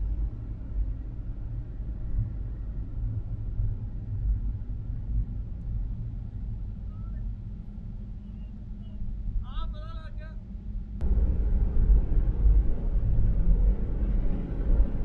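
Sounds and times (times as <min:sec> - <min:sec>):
car road noise rumble: 0:10.4 - 0:15.0.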